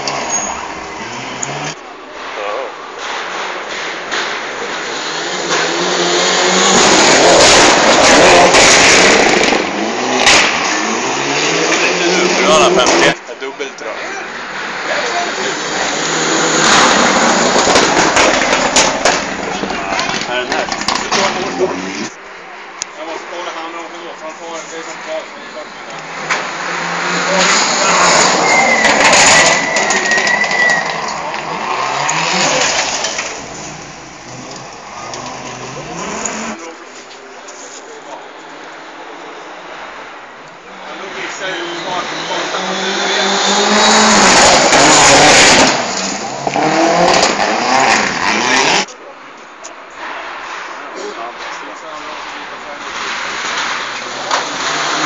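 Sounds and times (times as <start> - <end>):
race car engine revving past: 41.0 - 48.9.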